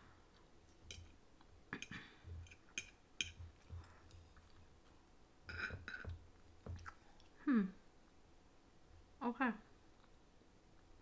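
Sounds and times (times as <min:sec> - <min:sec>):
fork tapping a plate: 0:01.8 - 0:03.8.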